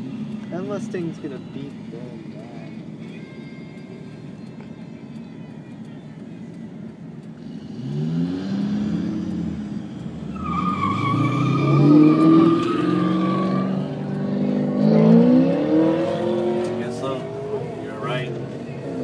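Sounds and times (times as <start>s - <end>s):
car engine accelerating hard: 7.4s - 19.0s.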